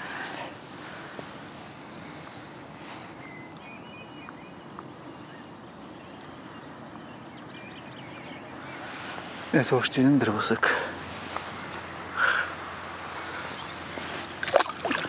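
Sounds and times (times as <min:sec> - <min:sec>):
low outdoor background noise: 0:00.0 - 0:15.0
faint bird chirps: 0:02.9 - 0:09.2.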